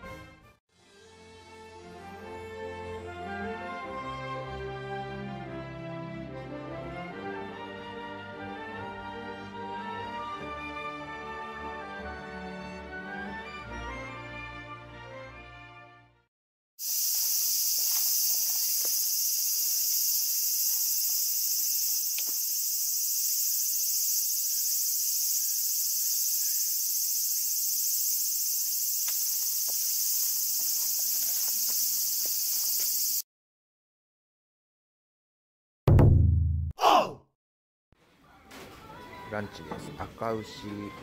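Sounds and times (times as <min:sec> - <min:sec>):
insects chorus: 0:16.8 - 0:33.2.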